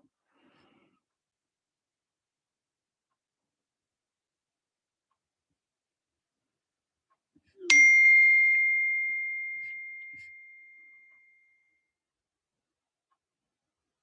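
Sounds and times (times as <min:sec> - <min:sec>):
bell ding: 0:07.7 - 0:11.7.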